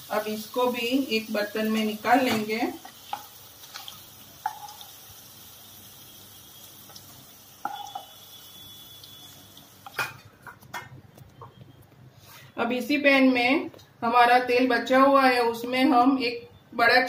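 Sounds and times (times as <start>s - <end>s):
food sizzling in oil: 0.0s - 10.2s
short metallic ring: 7.6s - 8.9s.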